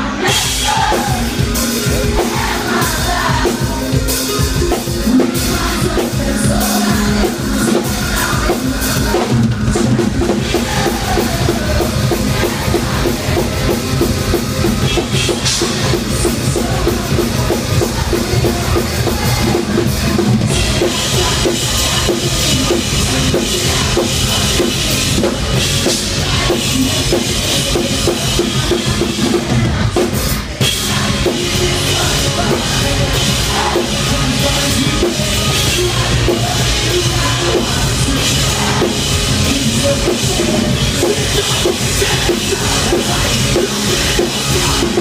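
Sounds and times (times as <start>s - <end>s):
loud metal band playing: 0.0s - 45.0s.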